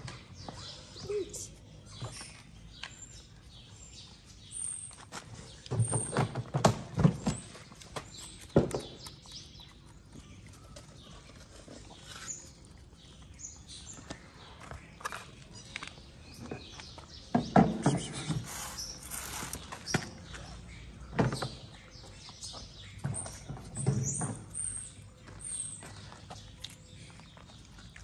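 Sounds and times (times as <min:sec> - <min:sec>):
cats crunching food: 0:07.7 - 0:13.7, 0:26.0 - 0:28.0.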